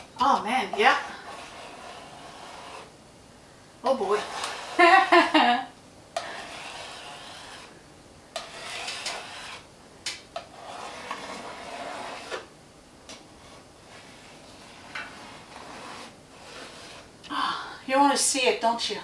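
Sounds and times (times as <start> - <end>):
hand scraper rasping on paint: 0.6 - 2.9, 3.9 - 5.1, 6.2 - 7.7, 8.4 - 9.7, 10.4 - 12.5, 13.5 - 17.1.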